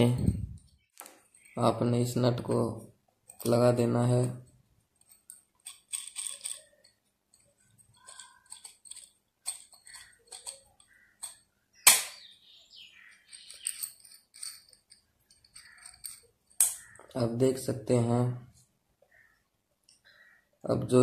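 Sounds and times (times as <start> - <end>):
metal bolt clicks and scrapes: 5.0 - 12.2, 13.1 - 17.1.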